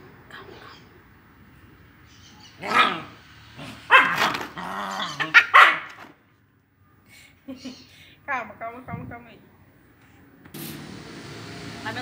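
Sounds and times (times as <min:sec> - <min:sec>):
dog barking: 0:02.6 - 0:03.2, 0:03.8 - 0:04.4, 0:05.2 - 0:06.0.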